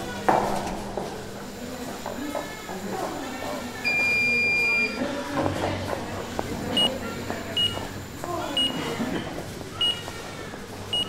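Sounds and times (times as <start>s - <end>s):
electronic beeps: 3.8s - 5.0s, 6.6s - 9.0s, 9.8s - 10.1s.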